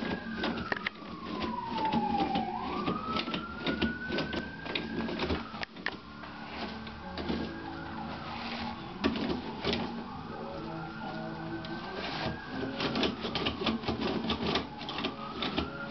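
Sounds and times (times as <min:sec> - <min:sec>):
cat scratching paper: 0:00.0 - 0:05.6, 0:10.9 - 0:15.9
high sliding whine: 0:00.0 - 0:13.1
toilet paper crinkling and tearing: 0:00.0 - 0:15.9.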